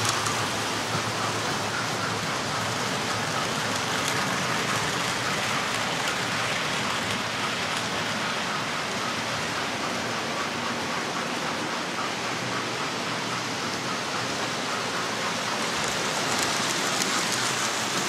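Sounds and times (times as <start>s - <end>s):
model train wheels rattling: 0.0s - 9.8s, 14.2s - 18.0s.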